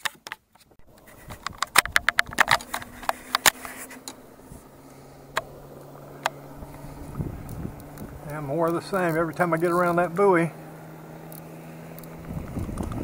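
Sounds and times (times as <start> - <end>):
steady low hum: 0.8 - 13.0
camera handling clicks and knocks: 1.0 - 4.2.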